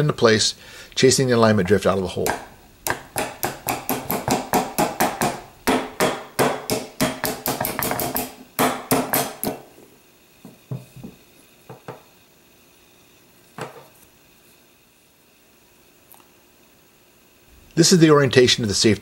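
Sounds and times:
hammer tapping metal pin: 2.2s - 9.6s.

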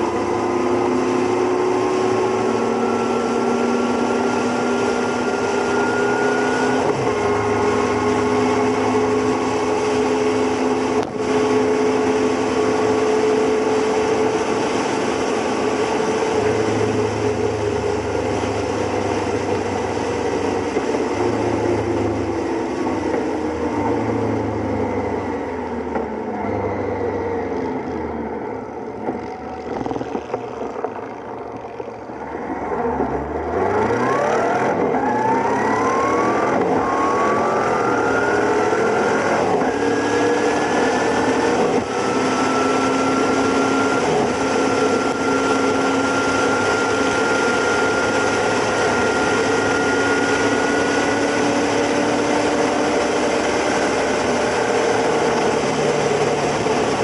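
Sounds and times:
motorcycle engine accelerating: 23.0s - 57.0s.

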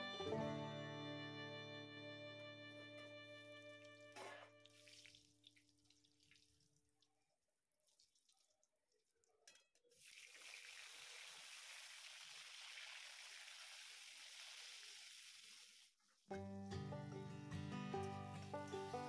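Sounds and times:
background music: 0.0s - 3.7s, 16.4s - 19.0s
frying hiss in hot oil: 9.8s - 16.3s.

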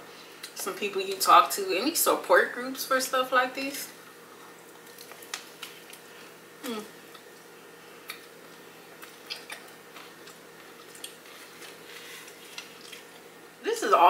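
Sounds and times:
person chewing: 4.1s - 13.3s.

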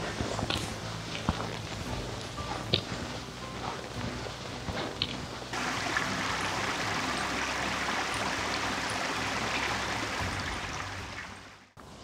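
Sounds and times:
brook babbling over rocks: 5.5s - 11.6s.

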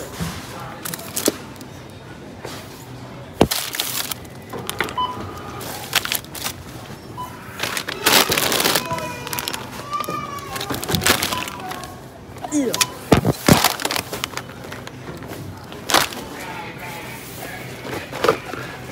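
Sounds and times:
plastic packaging crinkling: 0.7s - 1.7s, 3.4s - 4.9s, 5.6s - 6.8s, 7.5s - 16.4s.

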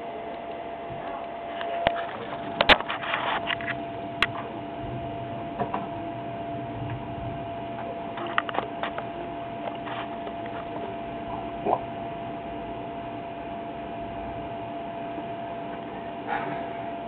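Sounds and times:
steady hum and hiss: 0.0s - 17.0s.

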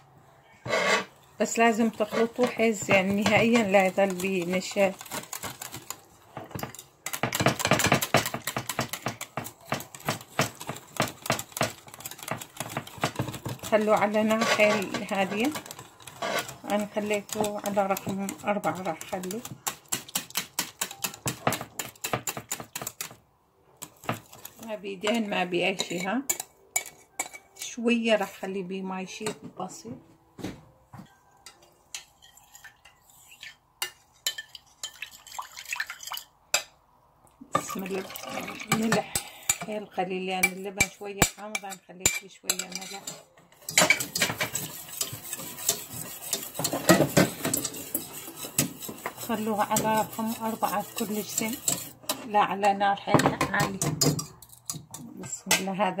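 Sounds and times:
kitchen utensils and dishes clinking: 0.6s - 23.1s, 23.8s - 27.9s, 31.0s - 36.7s, 37.5s - 56.0s
wire whisk beating in a bowl: 1.6s - 23.1s, 42.1s - 52.0s.

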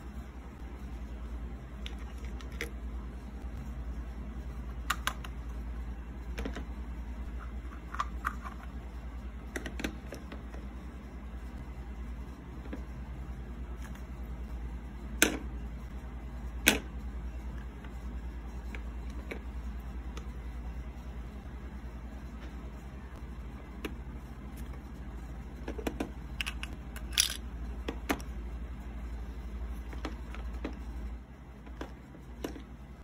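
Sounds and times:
low steady hum: 0.0s - 33.0s
plastic toy pieces clicking: 26.4s - 27.4s.

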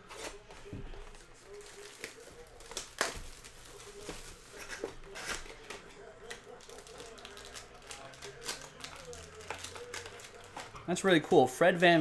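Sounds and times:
wrapping rustling and tearing: 1.0s - 10.7s.

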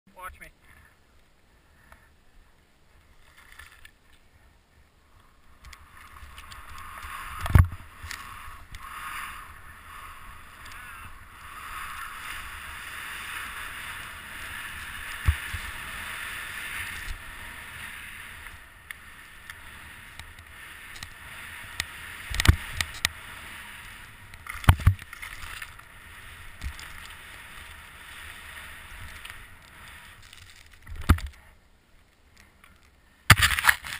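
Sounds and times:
skis hissing through snow: 5.8s - 30.8s.

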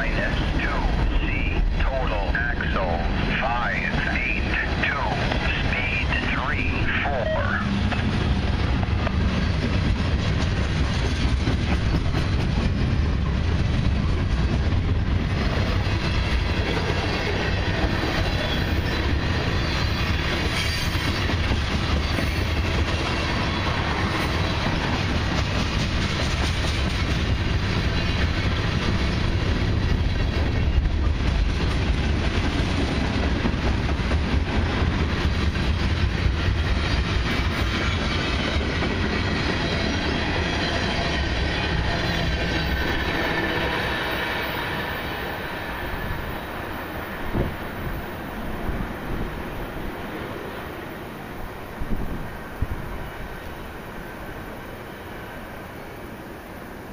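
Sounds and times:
freight train rolling past: 0.0s - 56.9s.

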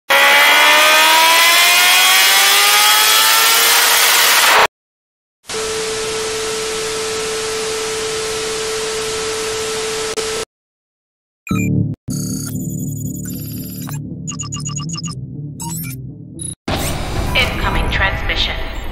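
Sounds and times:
steady beep tone: 11.5s - 16.6s.

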